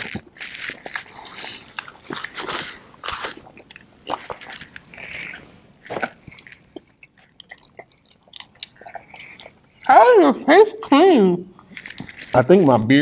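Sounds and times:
wet chewing and smacking: 0:00.0 - 0:10.1, 0:10.7 - 0:12.6.

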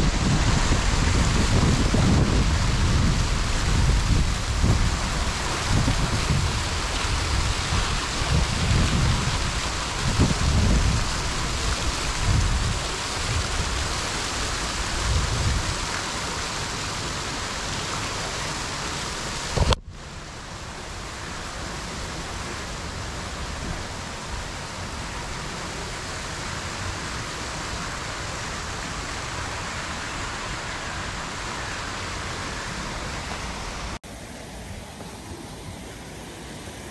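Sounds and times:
wind on microphone: 0:00.0 - 0:16.5, 0:19.4 - 0:20.1
waterfall splashing into pool: 0:00.0 - 0:36.9.

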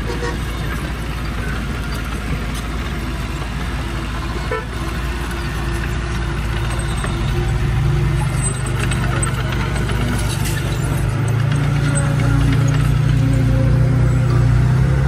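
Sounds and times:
diesel machinery running: 0:00.0 - 0:15.0.

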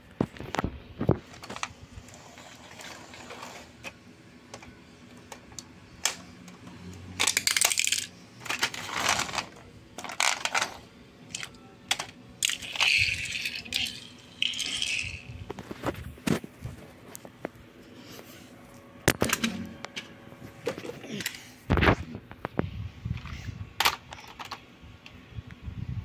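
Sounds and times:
plastic toy car clicking and rattling: 0:01.3 - 0:16.4, 0:23.2 - 0:24.6.

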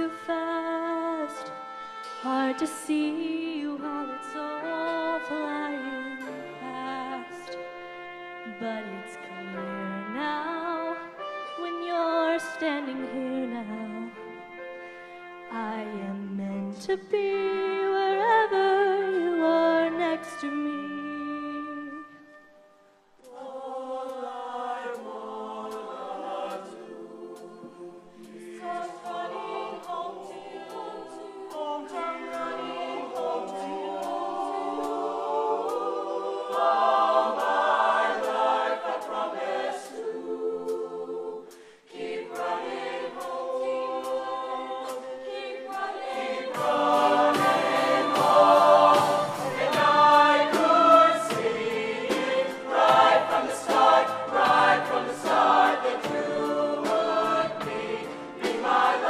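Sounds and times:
choir singing in harmony: 0:00.0 - 0:59.0
rhythmic beat of sharp hits: 0:44.9 - 0:59.0.

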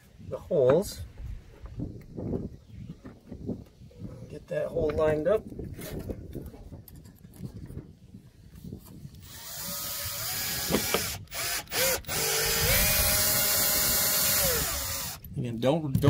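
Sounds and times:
cordless drill motor whine: 0:09.1 - 0:15.2.

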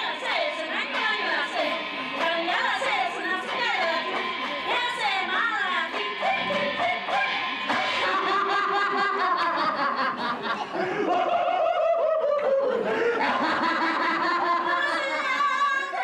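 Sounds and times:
crowd talking and laughing: 0:00.0 - 0:16.0.

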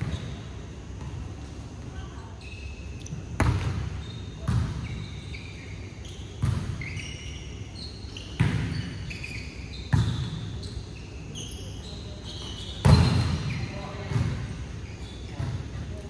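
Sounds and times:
sneakers squeaking on court: 0:00.0 - 0:16.0
volleyball hits echoing: 0:03.3 - 0:04.8.

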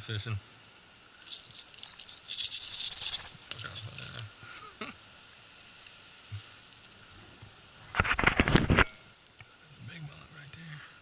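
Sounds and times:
fishing lure rattling: 0:01.1 - 0:04.2.

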